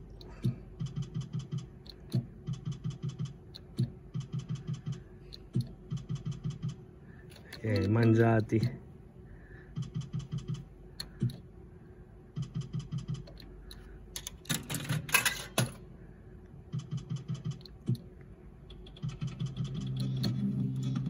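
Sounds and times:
slot machine reels ticking: 0:00.0 - 0:08.8, 0:18.7 - 0:21.0.

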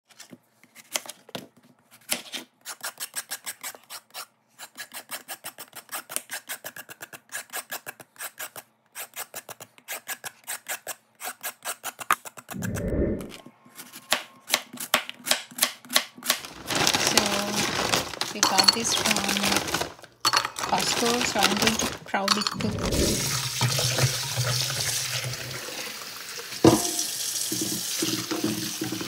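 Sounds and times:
knife scraping gourd skin: 0:02.0 - 0:12.6.

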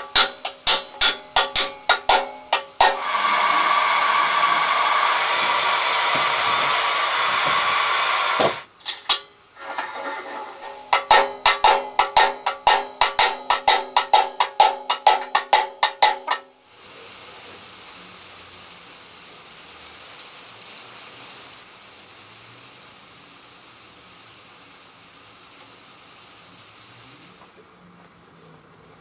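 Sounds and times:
hammer blows on metal tube: 0:00.0 - 0:09.2, 0:10.5 - 0:16.6.

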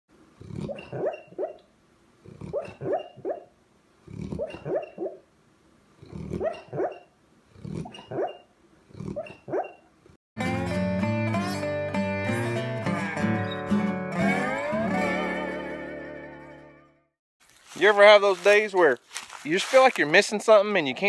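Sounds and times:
dog yipping and whimpering: 0:00.6 - 0:01.6, 0:02.5 - 0:03.5, 0:04.2 - 0:05.2, 0:06.2 - 0:07.1, 0:07.8 - 0:09.9.

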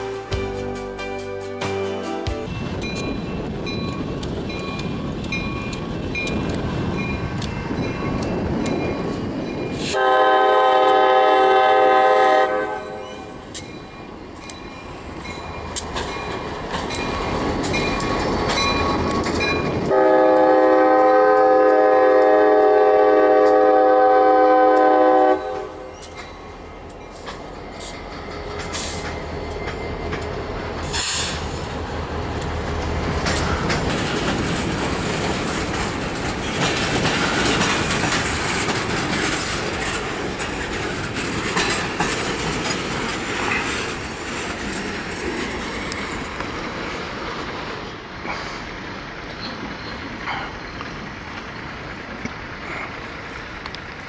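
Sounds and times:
locomotive engine rumble: 0:02.4 - 0:54.0
train air horn: 0:09.8 - 0:13.4, 0:19.9 - 0:25.9
wheels clattering over rail joints: 0:13.0 - 0:20.4, 0:25.4 - 0:54.0.

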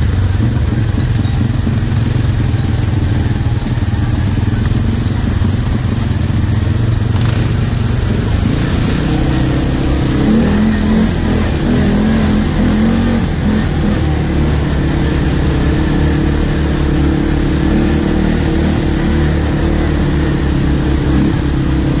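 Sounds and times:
atv engine running: 0:00.0 - 0:22.0.

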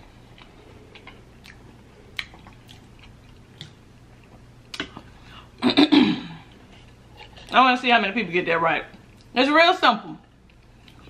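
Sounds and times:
person chewing food: 0:00.2 - 0:05.2, 0:06.4 - 0:07.6, 0:10.3 - 0:11.0.

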